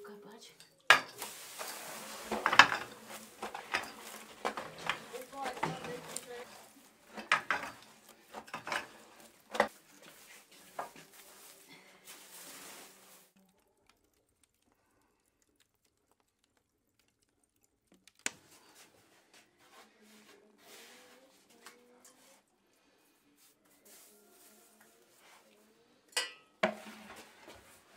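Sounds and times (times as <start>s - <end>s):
embers raked with scraper: 1.1s - 13.3s.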